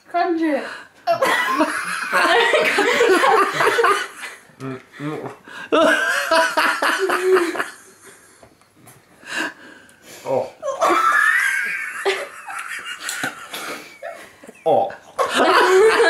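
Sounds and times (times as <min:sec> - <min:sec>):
people laughing: 0:01.1 - 0:08.5, 0:10.6 - 0:16.0.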